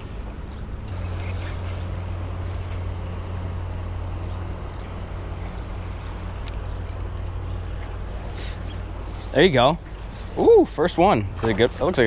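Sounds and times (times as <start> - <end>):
electric boat motor humming: 0.0 - 12.0.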